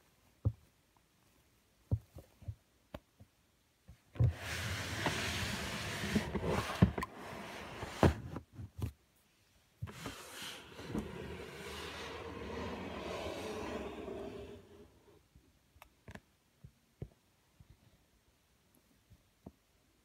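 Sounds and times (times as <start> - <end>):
plastic tub scraping slide: 4.2 - 8.4, 9.8 - 15.2.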